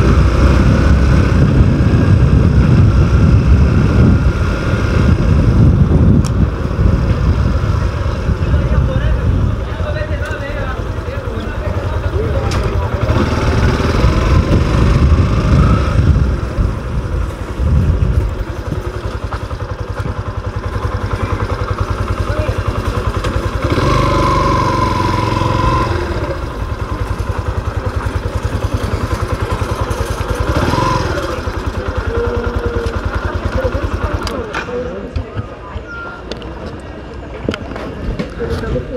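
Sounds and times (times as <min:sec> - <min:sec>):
motorcycle engine running: 0:00.0 - 0:38.9.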